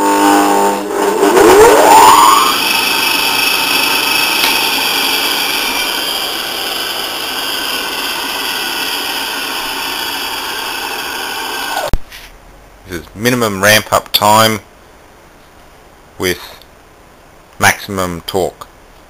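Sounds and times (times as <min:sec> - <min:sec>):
electric motor hum and whine: 0:01.8 - 0:12.0.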